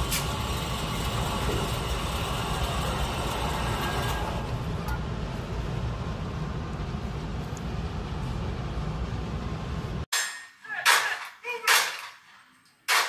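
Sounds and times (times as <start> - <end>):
target carrier motor running: 0.0 - 10.0.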